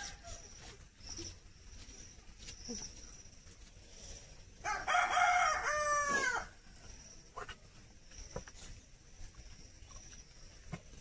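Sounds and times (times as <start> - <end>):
rooster crowing: 4.6 - 6.6.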